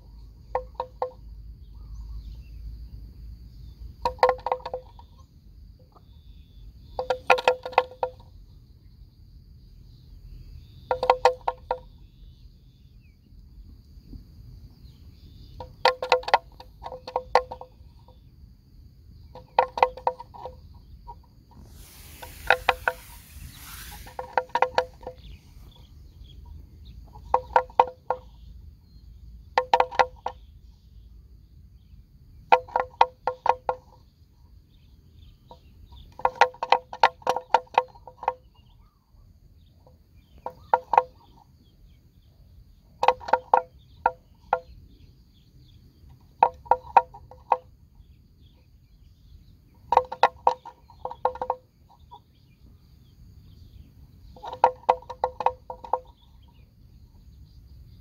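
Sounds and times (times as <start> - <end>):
buffaloes tearing off grass: 21.6 - 25.1.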